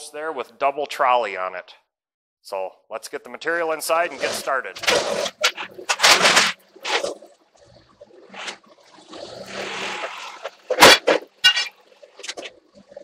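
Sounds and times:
forklift rattling and scraping: 0:04.0 - 0:07.2.

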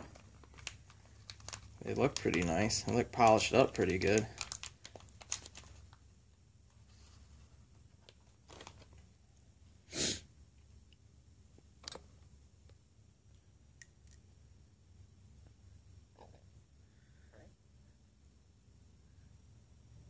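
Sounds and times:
plastic bag crinkling: 0:00.0 - 0:06.0, 0:08.1 - 0:09.0.

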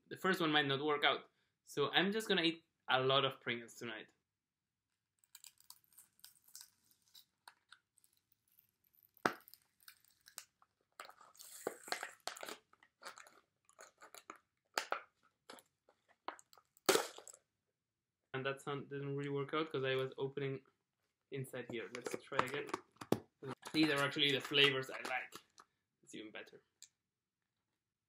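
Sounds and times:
lid and foil crinkling: 0:09.0 - 0:15.0, 0:23.5 - 0:25.5.

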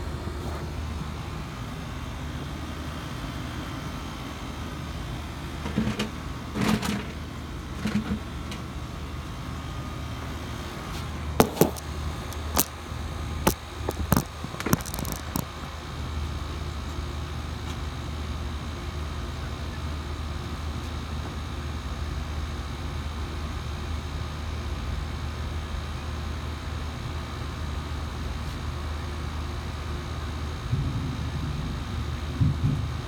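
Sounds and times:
low outdoor rumble: 0:00.0 - 0:17.8, 0:29.8 - 0:33.0
phone handling clicks and knocks: 0:11.4 - 0:11.8.

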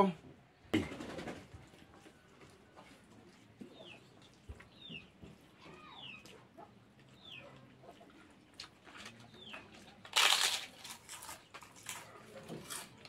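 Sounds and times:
chewing crunches: 0:07.6 - 0:13.0
crispy wafer crunching: 0:08.6 - 0:13.0.

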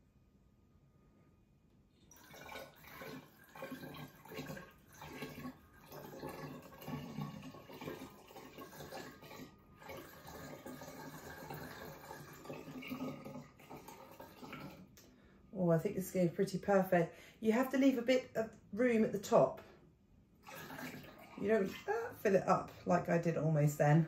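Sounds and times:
wine gurgling into bottle: 0:02.1 - 0:15.1, 0:20.4 - 0:22.4.

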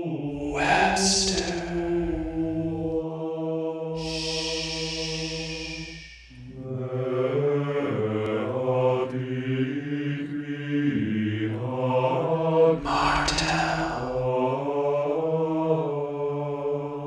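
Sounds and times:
deep voices chanting: 0:00.0 - 0:17.0
hushing shhh: 0:00.4 - 0:03.0, 0:04.0 - 0:06.7, 0:12.8 - 0:14.4.

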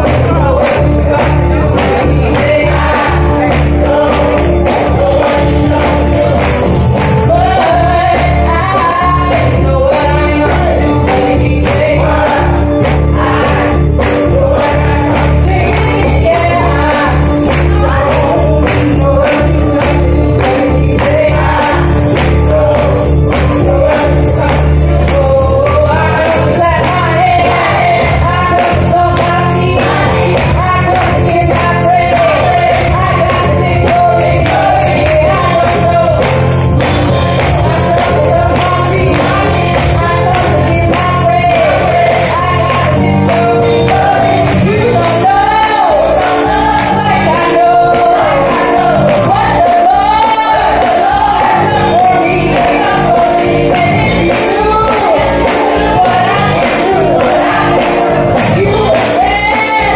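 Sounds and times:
church band accompaniment: 0:00.0 - 0:59.9
clapping beat: 0:00.0 - 0:59.9
woman singing gospel: 0:00.0 - 0:59.9.

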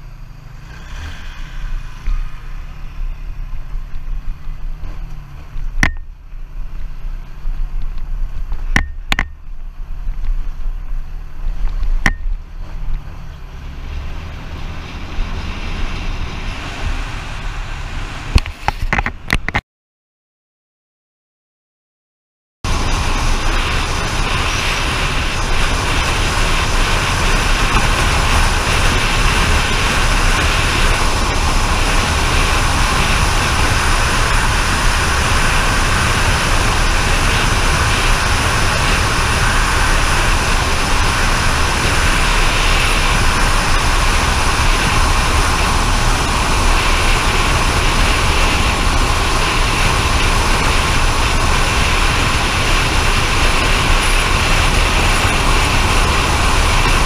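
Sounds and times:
wind and road noise: 0:00.0 - 0:19.6, 0:22.6 - 0:57.0
low rumble: 0:22.6 - 0:57.0.

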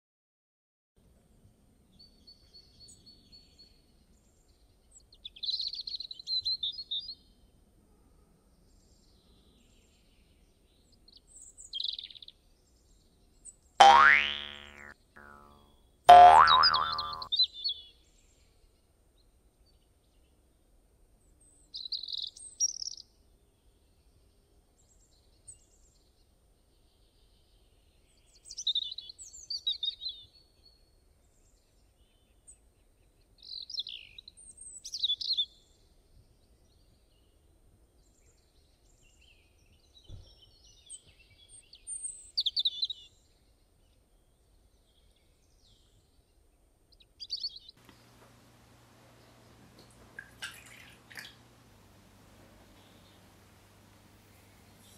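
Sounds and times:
songbird chirps and trills: 0:13.8 - 0:17.3, 0:47.3 - 0:54.9.

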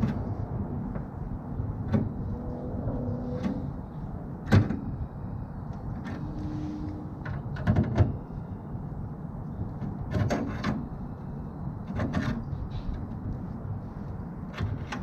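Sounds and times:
steady low rumble: 0:00.0 - 0:10.1.

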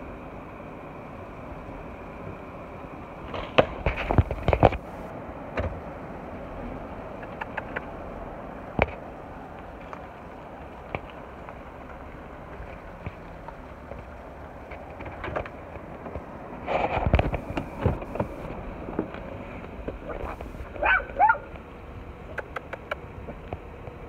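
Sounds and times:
background hiss: 0:00.0 - 0:07.2
puppy yelping: 0:20.7 - 0:21.5.

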